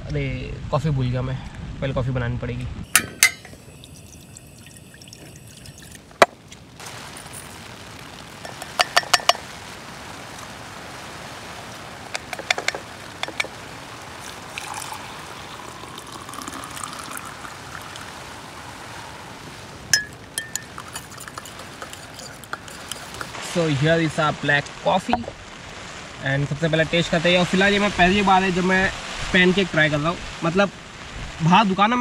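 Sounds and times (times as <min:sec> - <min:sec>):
water pouring into saucepan: 0:02.9 - 0:06.2, 0:12.7 - 0:23.3
hot water pouring into mug: 0:02.9 - 0:06.3, 0:06.9 - 0:09.6, 0:12.2 - 0:23.5
spoon clinking against mug: 0:03.0 - 0:03.6, 0:20.0 - 0:23.3
utensils clicking and knocking: 0:20.0 - 0:23.4.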